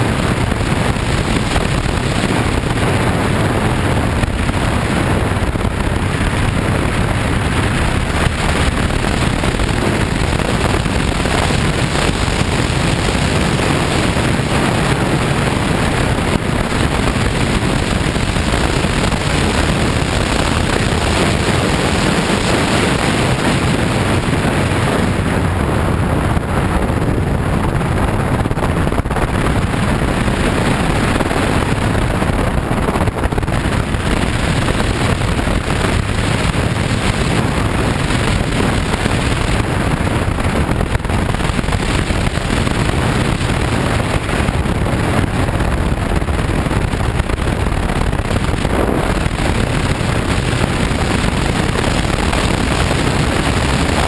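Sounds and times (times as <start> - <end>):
motorcycle engine: 0.0 - 54.0
wind rushing over microphone: 0.0 - 54.0.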